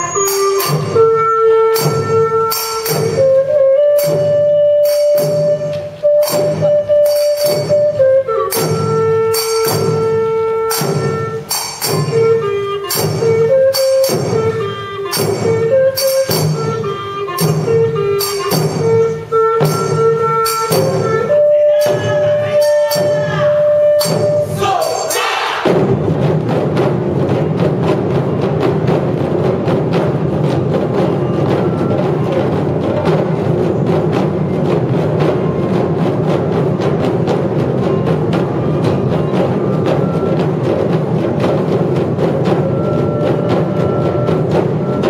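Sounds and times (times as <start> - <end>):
flute melody: 0.0 - 25.4, 29.9 - 45.0
taiko drumming: 0.0 - 45.0
sharp metallic strikes: 24.0 - 26.0.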